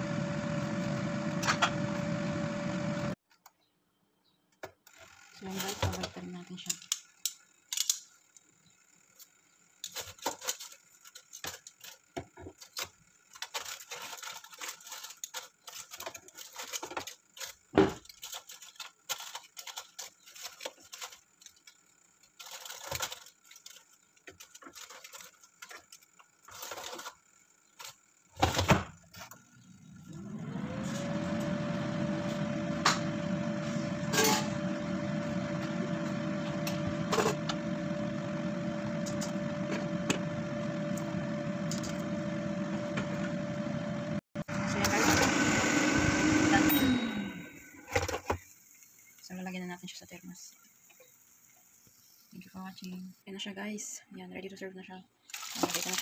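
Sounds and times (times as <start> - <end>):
air fryer fan whirring: 0.0 - 3.2, 9.2 - 49.7
aluminium foil crinkling: 9.8 - 28.0, 55.2 - 56.0.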